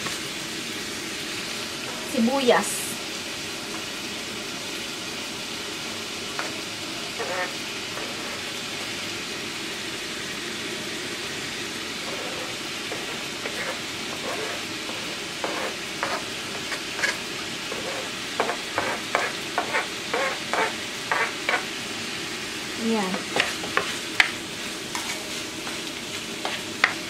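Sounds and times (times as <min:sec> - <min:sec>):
meat sizzling in a frying pan: 0:00.0 - 0:27.0
spatula scraping cutting board: 0:07.1 - 0:08.6, 0:12.0 - 0:21.7, 0:23.1 - 0:24.0, 0:24.9 - 0:25.8.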